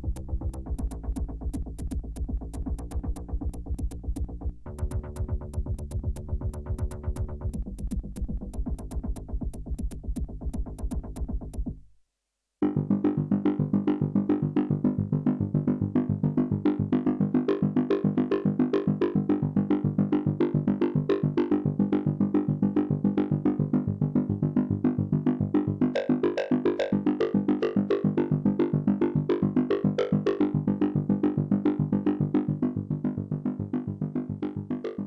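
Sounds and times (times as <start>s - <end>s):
fast run of synthesizer notes: 0.0s - 11.7s
steady high ticking: 0.0s - 11.8s
synthesizer bass sequence: 0.0s - 11.9s.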